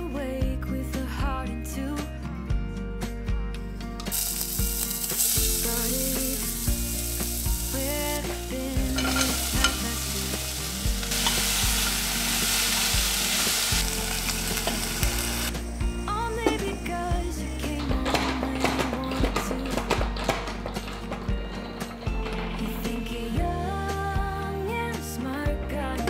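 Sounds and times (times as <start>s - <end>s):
onion sizzling in a saucepan: 4.1s - 17.2s
wooden spoon stirring: 7.7s - 12.5s.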